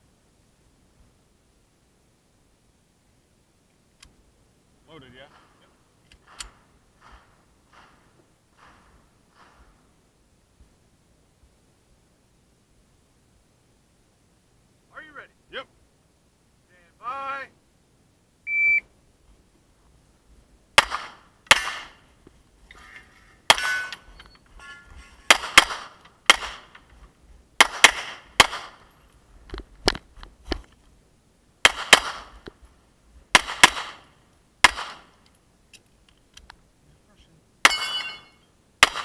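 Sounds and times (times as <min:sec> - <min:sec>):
pistol shots: 0:06.2 - 0:09.6, 0:20.8 - 0:22.0, 0:23.5 - 0:24.0, 0:25.3 - 0:26.8, 0:27.6 - 0:28.9, 0:31.6 - 0:32.4, 0:33.3 - 0:35.2, 0:37.6 - 0:39.0
ringing tone: 0:37.7 - 0:38.5.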